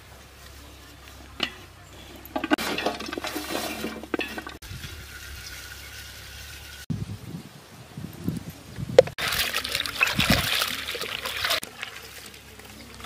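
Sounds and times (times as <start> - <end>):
vegetables clattering into pot: 1.4 - 4.6
water sloshing: 9.0 - 13.0
water pouring into pot: 9.2 - 12.5.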